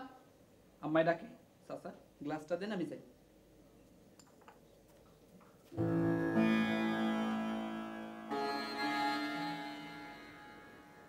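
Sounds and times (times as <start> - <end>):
plucked string instrument music: 5.8 - 11.0.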